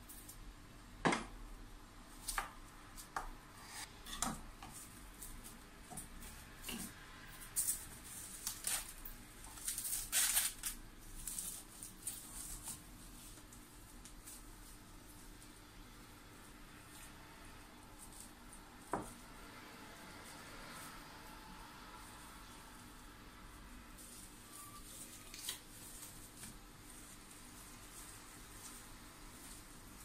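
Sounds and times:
plastic cling film crinkling: 7.5 - 15.6, 22.4 - 30.0.

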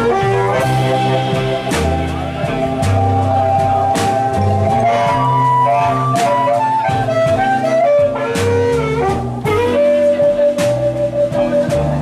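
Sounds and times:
harmonica solo: 0.0 - 1.8, 3.6 - 10.7
drums: 0.0 - 12.0
electric guitar: 0.0 - 12.0
upright double bass: 0.0 - 12.0.

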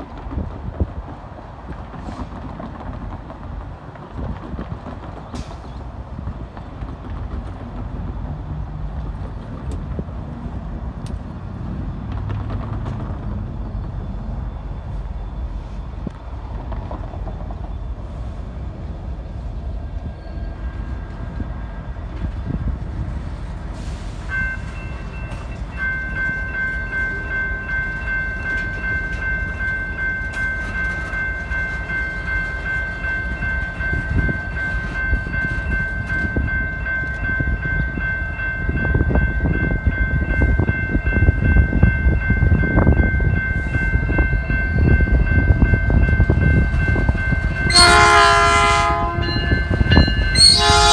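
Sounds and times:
train wheels and diesel rumble: 0.0 - 50.9
locomotive air horn: 47.7 - 49.5, 50.4 - 50.9.

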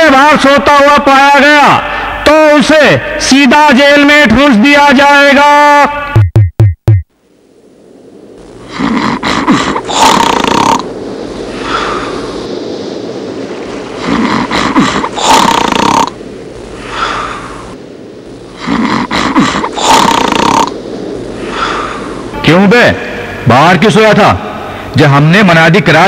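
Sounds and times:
man snoring: 8.7 - 10.9, 14.0 - 16.2, 18.6 - 20.8.

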